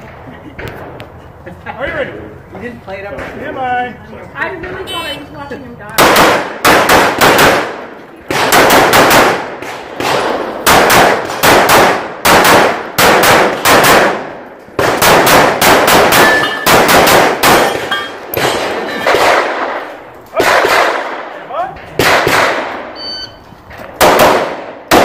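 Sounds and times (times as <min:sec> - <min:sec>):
handgun shots: 0:22.0 - 0:22.8.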